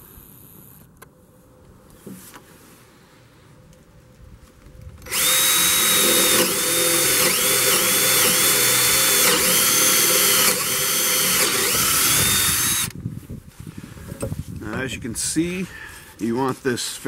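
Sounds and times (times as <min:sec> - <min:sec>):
power drill boring into wood: 0:05.0 - 0:12.9.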